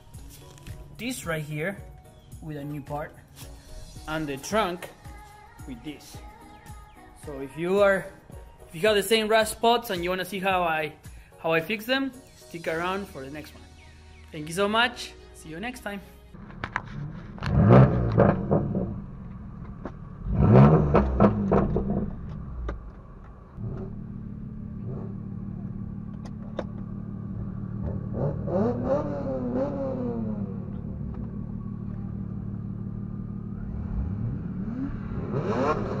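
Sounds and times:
car engine revving: 0:16.4 - 0:36.0
engine drone inside car cabin: 0:16.4 - 0:36.0.

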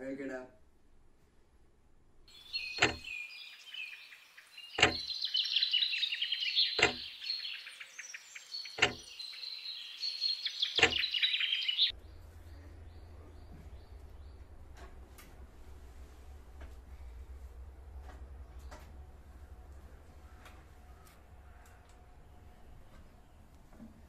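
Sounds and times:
birds chirping: 0:02.3 - 0:15.1, 0:17.0 - 0:24.0
sharp heavy knocks: 0:02.8 - 0:03.1, 0:04.8 - 0:05.1.

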